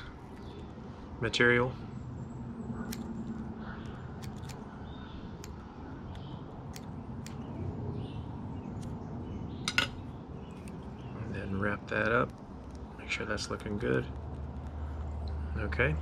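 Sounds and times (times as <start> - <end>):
scissors snipping clicks: 2.8 - 4.7, 5.4 - 7.5.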